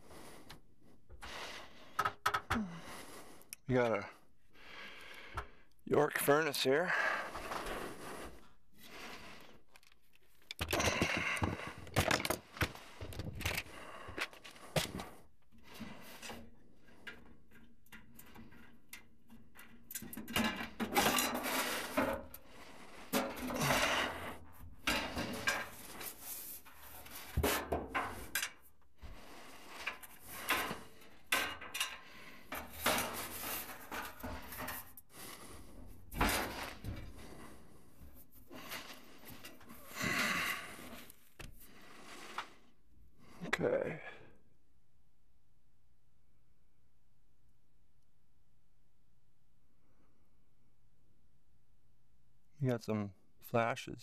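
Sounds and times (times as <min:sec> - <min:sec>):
tools knocking and scraping: 0:16.3 - 0:22.4, 0:23.1 - 0:28.6, 0:29.7 - 0:35.0.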